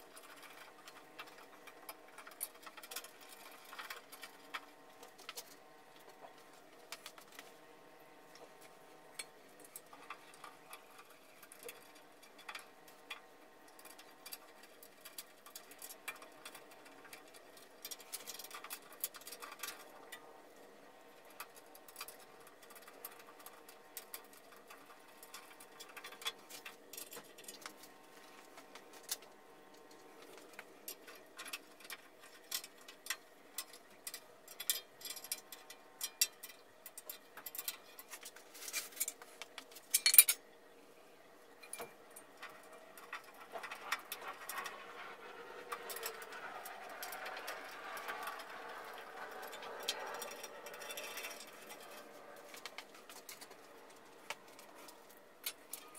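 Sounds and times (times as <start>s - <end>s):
faint steady hum: 0.0s - 55.9s
light metal clicks and knocks: 30.3s - 40.4s.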